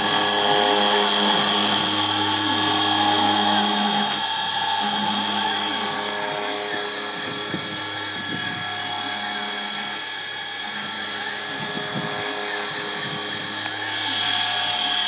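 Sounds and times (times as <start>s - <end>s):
spindle whining: 0.0s - 15.0s
stepper motors whirring: 0.0s - 15.0s.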